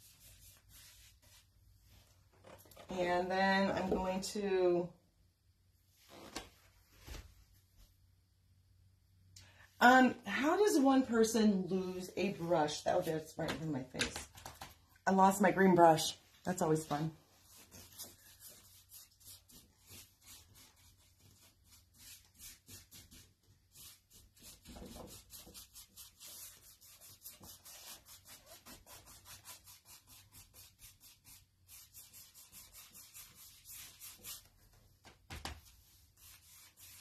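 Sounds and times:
paintbrush scrubbing on wood: 0:00.0 - 0:01.5, 0:17.3 - 0:34.5, 0:35.8 - 0:37.0.

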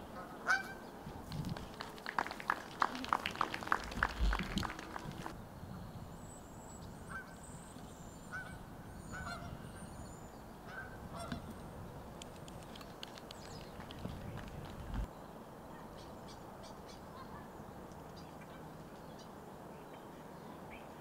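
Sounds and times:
geese honking: 0:00.0 - 0:00.9, 0:08.3 - 0:09.6, 0:10.6 - 0:11.5.

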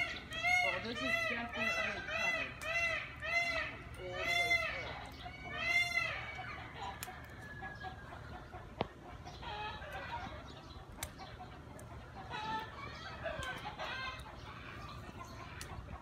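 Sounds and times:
faint clucking of fowl: 0:00.0 - 0:16.0.

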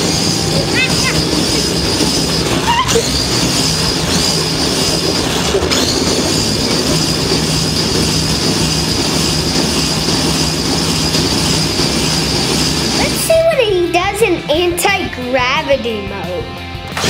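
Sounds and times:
toy kart motor whining: 0:00.0 - 0:13.4.

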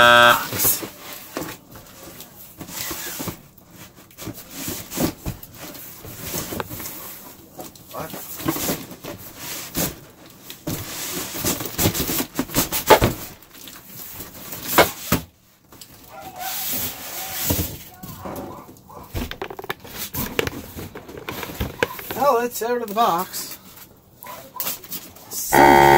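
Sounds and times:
cardboard scraping and rustling: 0:00.6 - 0:07.4, 0:19.1 - 0:22.4.

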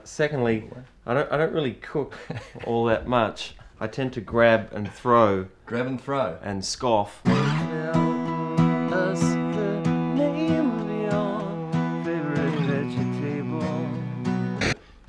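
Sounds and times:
guitar strumming chords: 0:07.2 - 0:14.8
sliding melody: 0:07.3 - 0:14.8.

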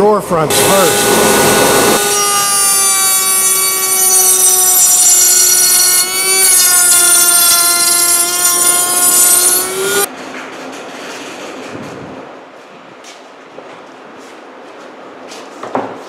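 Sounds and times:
router high whine: 0:00.5 - 0:10.1.

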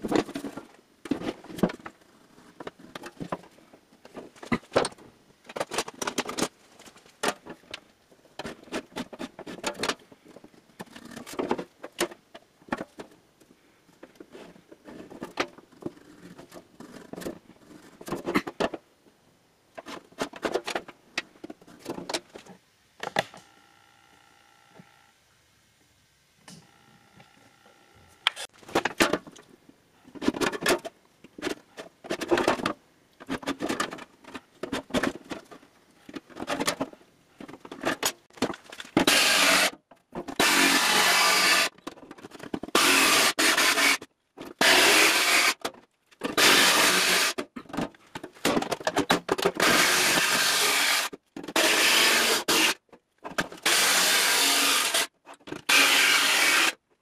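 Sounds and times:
jigsaw cutting sheet steel: 0:39.0 - 0:39.7, 0:40.4 - 0:41.7, 0:42.7 - 0:44.0, 0:44.6 - 0:45.6, 0:46.3 - 0:47.4, 0:49.6 - 0:52.8, 0:53.6 - 0:56.8.

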